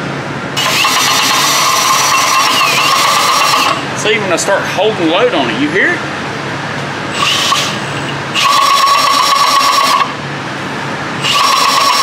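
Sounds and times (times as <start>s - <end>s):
gears knocking: 0.6s - 3.8s
gears whining: 0.6s - 3.9s, 7.1s - 10.2s, 11.2s - 12.0s.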